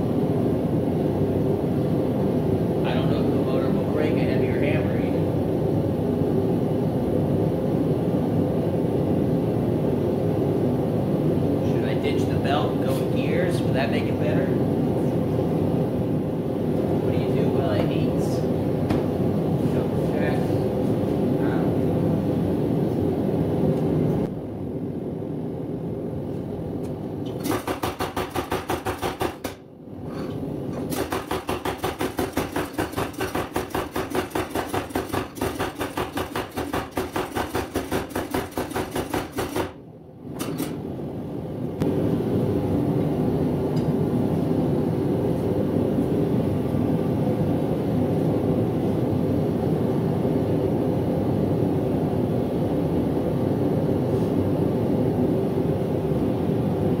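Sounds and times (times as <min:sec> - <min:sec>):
gas forge roaring: 0:00.0 - 0:57.0
power hammer pounding steel: 0:27.4 - 0:29.6, 0:30.8 - 0:39.8.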